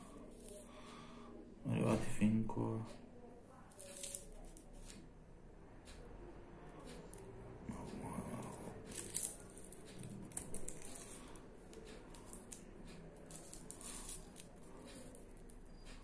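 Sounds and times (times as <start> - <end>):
soft ticks: 5.8 - 16.0.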